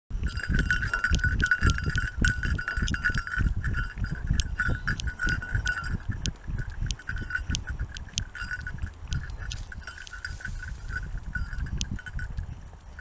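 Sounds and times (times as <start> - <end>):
running dog thumps and rumble: 0.1 - 13.0
high ringing jingle: 0.2 - 13.0
small clicks: 4.3 - 11.0.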